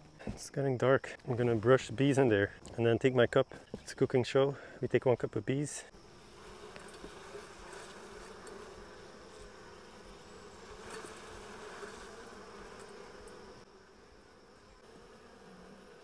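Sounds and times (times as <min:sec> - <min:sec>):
honey bees buzzing: 0:05.5 - 0:16.0.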